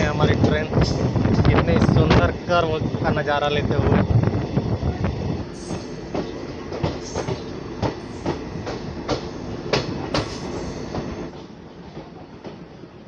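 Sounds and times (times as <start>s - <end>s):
train rolling rumble: 0.0s - 13.0s
train wheels clicking over joints: 5.4s - 12.8s.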